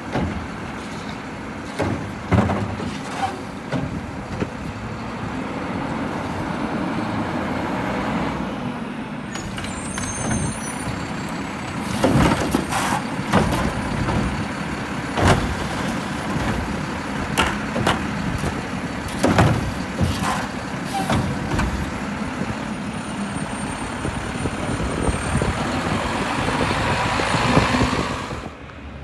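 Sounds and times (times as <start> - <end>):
garbage truck running: 0.0 - 29.0
high squeal: 9.4 - 11.4
metal clanks and bangs: 9.4 - 22.1.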